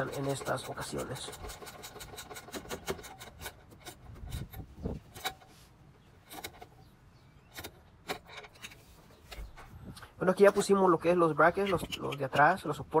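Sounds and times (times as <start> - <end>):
wrench clicking and scraping: 0.0 - 5.6, 6.2 - 6.8, 7.4 - 9.6, 11.5 - 12.7.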